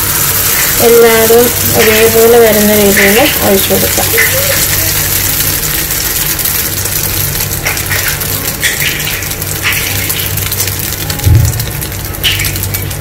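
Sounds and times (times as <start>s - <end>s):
batter sizzling in a frying pan: 0.0s - 13.0s
short low thump: 11.3s - 11.7s.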